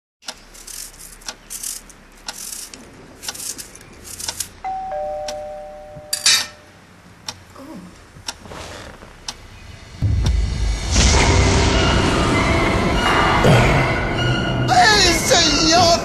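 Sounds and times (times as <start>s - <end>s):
two-tone doorbell chime: 4.6s - 6.7s.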